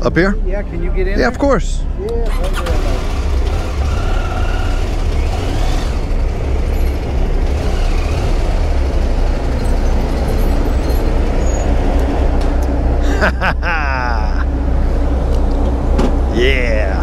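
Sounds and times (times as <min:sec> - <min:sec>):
motorcycle engine rumbling: 0:02.0 - 0:12.6.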